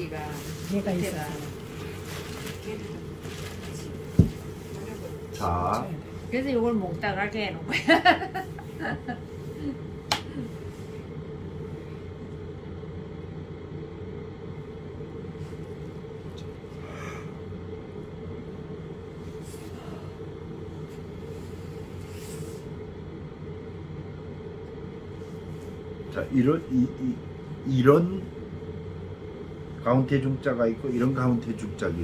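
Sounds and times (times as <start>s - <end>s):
low room hum: 0.0s - 32.0s.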